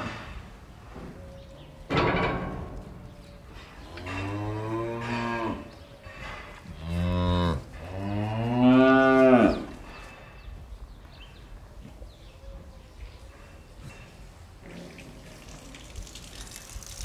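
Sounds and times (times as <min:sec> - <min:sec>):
cows mooing: 0:03.9 - 0:05.8, 0:06.8 - 0:09.7.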